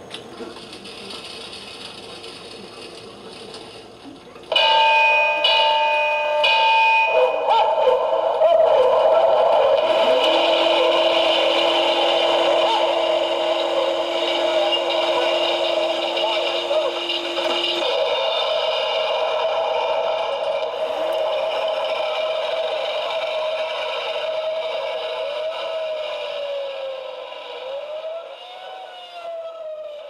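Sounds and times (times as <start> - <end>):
alarm bell ringing: 4.5 - 27.7.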